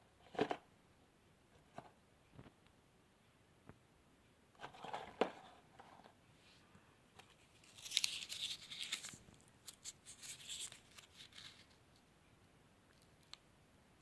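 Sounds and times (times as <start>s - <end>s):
paper rustling: 7.2s - 11.8s
paper crinkling and tearing: 7.5s - 11.8s.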